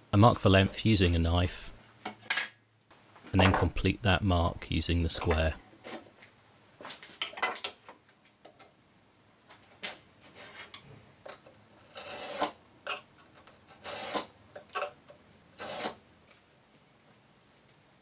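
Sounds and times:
steel edge scratching wood: 11.8 - 13.1, 13.7 - 14.9, 15.6 - 16.0.

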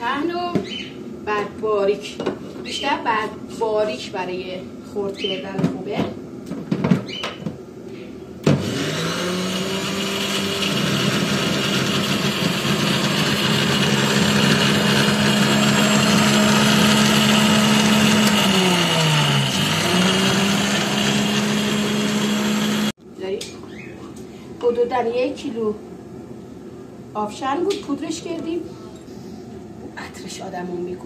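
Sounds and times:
grinder motor whine: 8.5 - 23.0.

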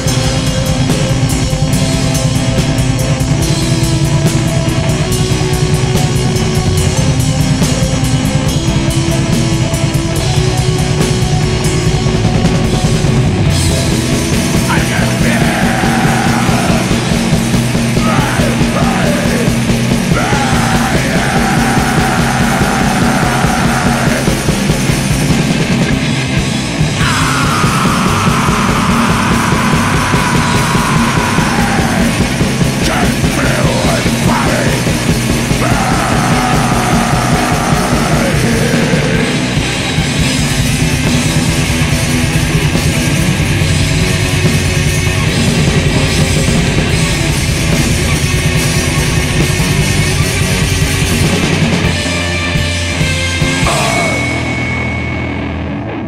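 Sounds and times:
metal band playing: 0.0 - 56.0
harsh yelled vocals: 14.4 - 25.4, 26.9 - 40.1, 53.5 - 54.6.

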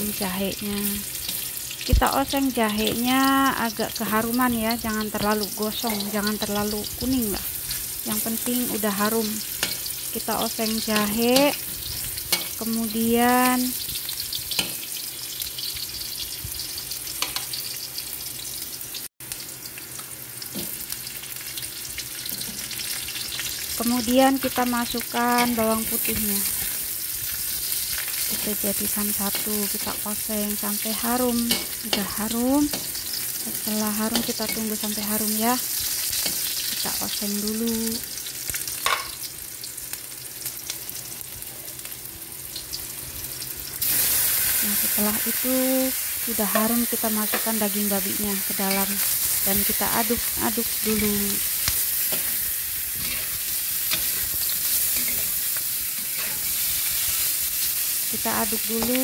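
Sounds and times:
garlic and ginger sizzling in oil: 0.0 - 59.0
metal spatula scraping: 7.7 - 12.6, 31.4 - 33.3, 50.7 - 57.3
metal spatula scraping wok: 50.9 - 57.3.

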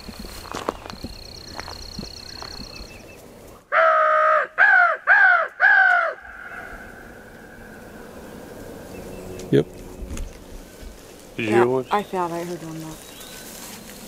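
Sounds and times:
crow cawing: 3.7 - 7.7.

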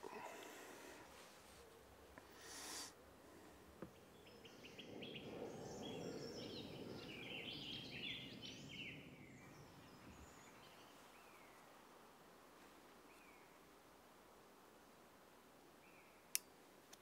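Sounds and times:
low outdoor hush: 0.0 - 17.0
small birds singing: 3.8 - 11.8, 13.0 - 13.7, 15.8 - 16.6.

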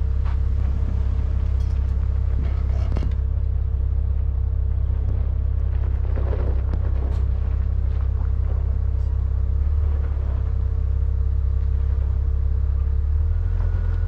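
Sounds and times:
off-road vehicle engine rumbling: 0.0 - 14.0.

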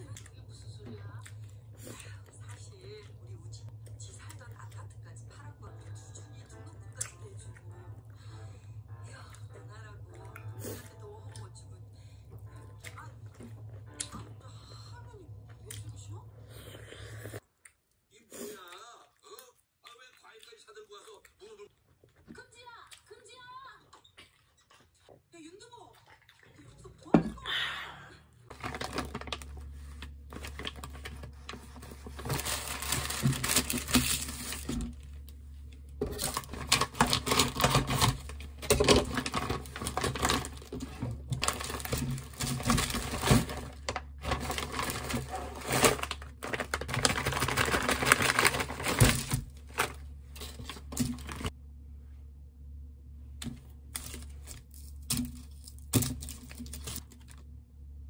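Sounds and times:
plastic bag crinkling and rustling: 28.5 - 51.5, 53.9 - 57.5.

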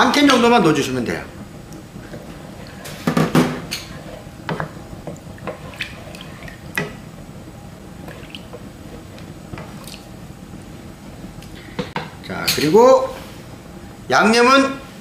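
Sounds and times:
liquid sloshing in pan: 2.0 - 7.1, 7.9 - 10.2.

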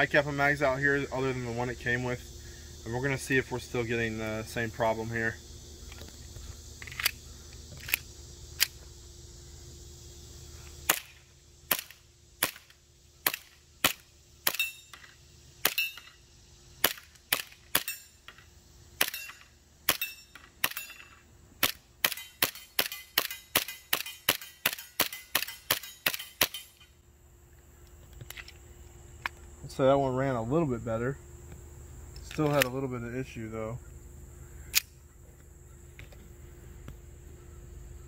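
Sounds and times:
airsoft pistol shots: 10.9 - 14.7, 21.6 - 26.7.

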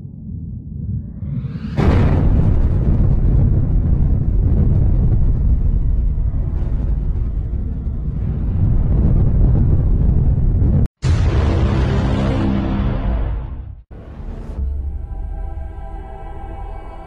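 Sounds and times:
deep rumble of explosion: 0.0 - 11.8
ominous music: 11.0 - 17.0.

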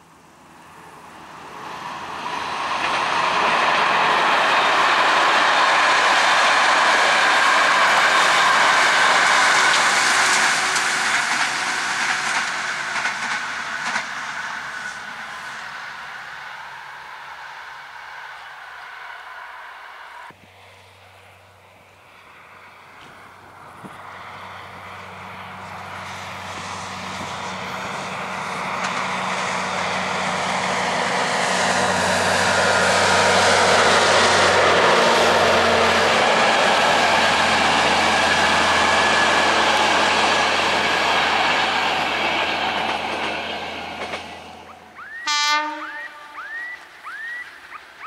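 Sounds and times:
locomotive engine drone: 0.0 - 48.0
train wheel and rail noise: 0.0 - 48.0
loud tone and rising chirp: 44.4 - 48.0.

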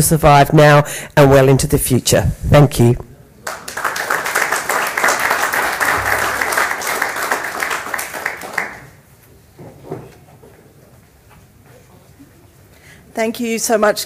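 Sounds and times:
audience applauding: 3.4 - 9.0.

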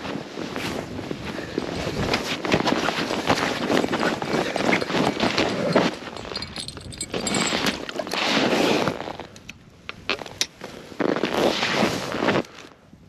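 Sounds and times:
footsteps crunching through snow: 10.6 - 12.6.

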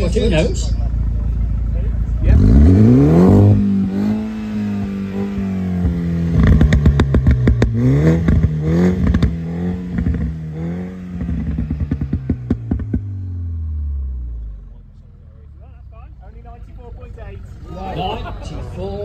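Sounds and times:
car engine at high revs: 0.0 - 15.0
exhaust crackles and pops: 1.3 - 14.0.

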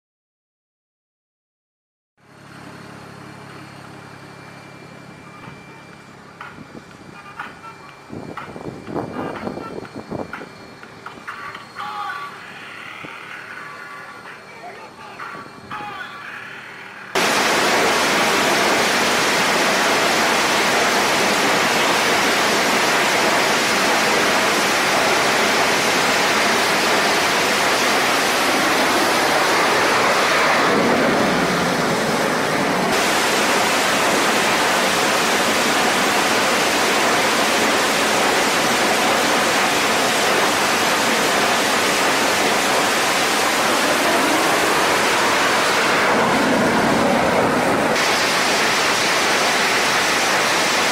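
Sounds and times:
loud jet engine noise: 2.2 - 50.9
jet passing by: 11.4 - 50.9.

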